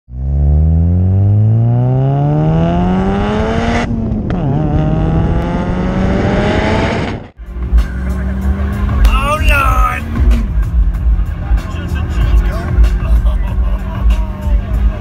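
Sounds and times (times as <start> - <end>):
turbo engine revving: 0.1 - 15.0.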